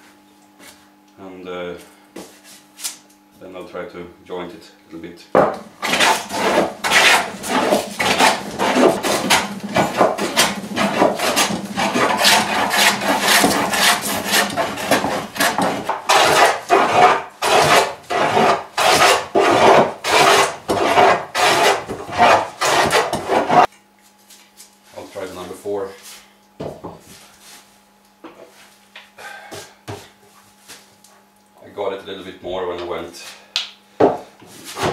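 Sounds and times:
hand plane shaving wood: 0:05.8 - 0:23.7.

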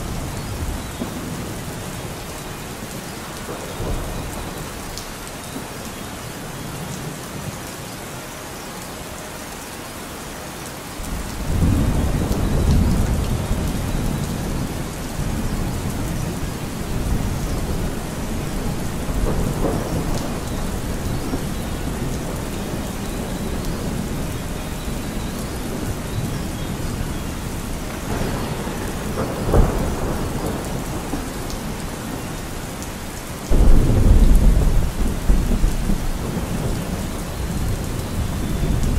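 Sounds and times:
steady rain: 0:00.0 - 0:38.9
thunder rumbling: 0:03.4 - 0:05.0, 0:11.0 - 0:38.9
sharp thunder clap: 0:27.9 - 0:31.8, 0:33.5 - 0:36.9.

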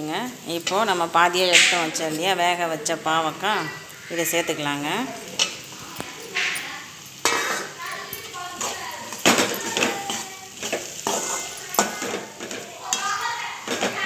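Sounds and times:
masala sizzling: 0:00.0 - 0:14.0
metal spatula scraping pan: 0:05.1 - 0:14.0.

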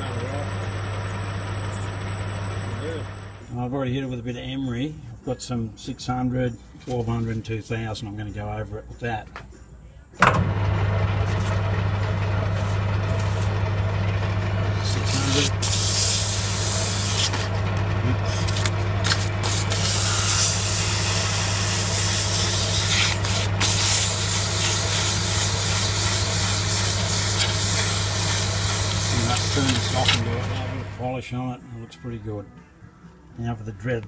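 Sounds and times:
metal lathe humming: 0:10.4 - 0:31.0
emery paper scraping metal: 0:12.4 - 0:13.6, 0:14.8 - 0:17.6, 0:18.2 - 0:30.7.

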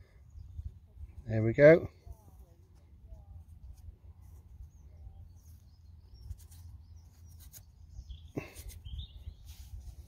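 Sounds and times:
wind rumble on microphone: 0:00.3 - 0:01.2
bird chirp: 0:04.6 - 0:09.8.

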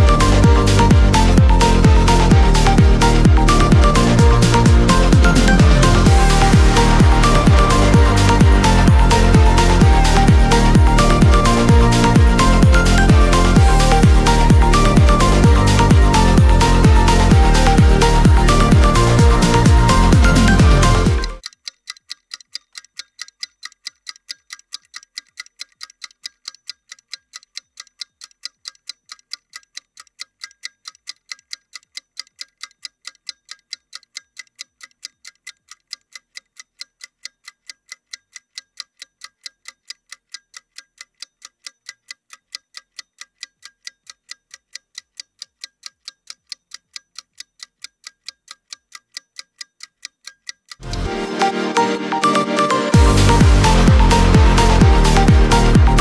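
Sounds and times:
electronic dance music: 0:00.0 - 0:21.4, 0:50.8 - 0:56.0
clock ticking sound effect: 0:00.0 - 0:56.0.

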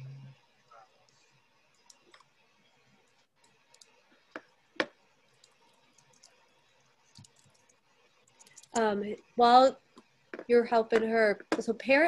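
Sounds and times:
computer keys clicking: 0:01.7 - 0:02.3, 0:03.4 - 0:04.0, 0:05.4 - 0:06.4, 0:07.1 - 0:08.9.

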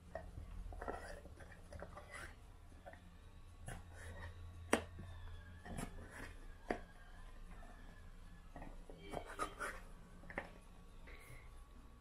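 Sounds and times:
faint low hum: 0:00.0 - 0:12.0
spatula scraping carton: 0:00.8 - 0:02.4, 0:09.0 - 0:09.9.

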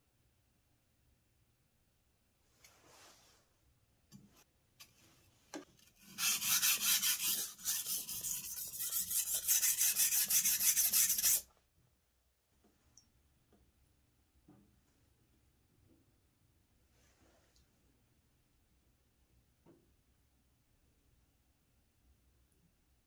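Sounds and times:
knife scraping on whetstone: 0:05.9 - 0:11.4.

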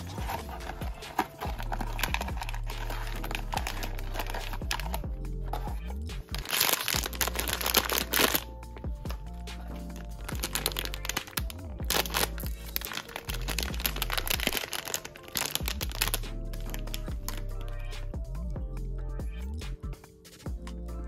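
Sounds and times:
plastic bag crinkling: 0:00.0 - 0:05.0, 0:06.4 - 0:08.5, 0:09.9 - 0:17.4
background music: 0:00.0 - 0:21.0.

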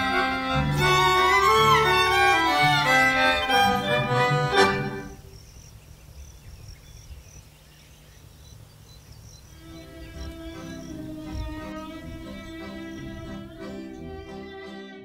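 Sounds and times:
instrumental soundtrack music: 0:00.0 - 0:05.2, 0:09.5 - 0:15.0
faint high chirping: 0:04.9 - 0:14.6.

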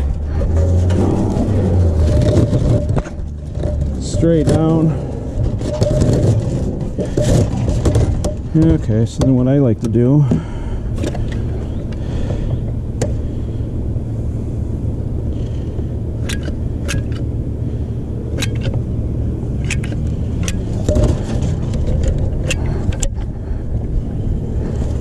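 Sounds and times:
steady low rumble: 0:00.0 - 0:25.0.

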